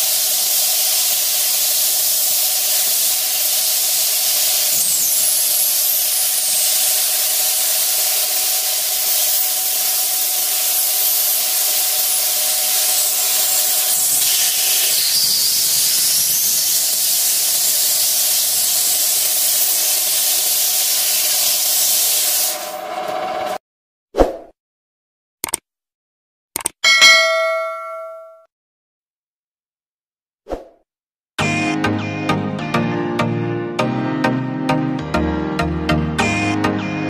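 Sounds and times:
sandblast gun hissing: 0.0 - 22.7
steady tone: 26.8 - 28.4.

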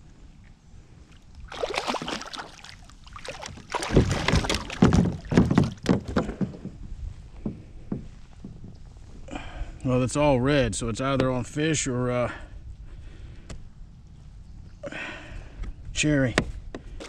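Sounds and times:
fish splashing in water: 1.4 - 5.8.

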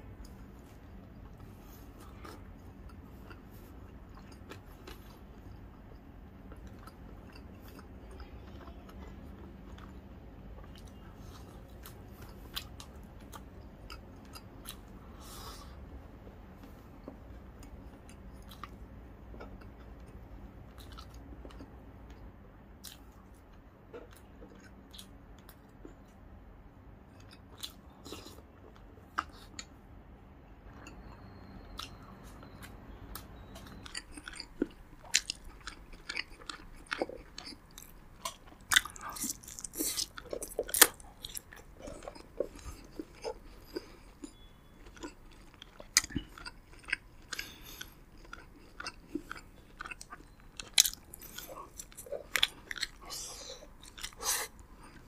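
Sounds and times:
chewing and biting meat: 30.7 - 55.0.

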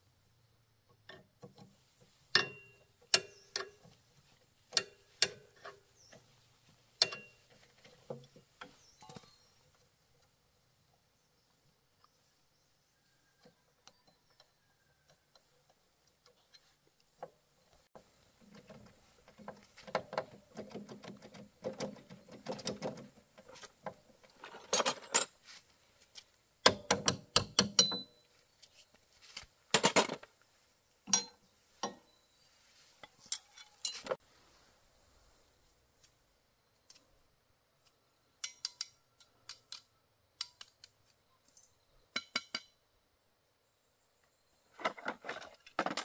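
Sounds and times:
tools scraping and rattling metal: 1.1 - 9.5, 18.4 - 25.6, 29.7 - 30.3, 31.1 - 32.2, 32.9 - 34.2, 44.7 - 46.0
sharp metal clanks: 2.3 - 3.8, 7.0 - 7.4, 26.6 - 28.2, 31.1 - 32.1.

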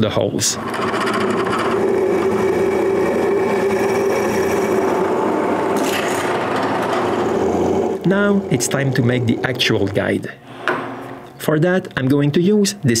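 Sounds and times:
drill press drilling steel: 0.6 - 10.0.

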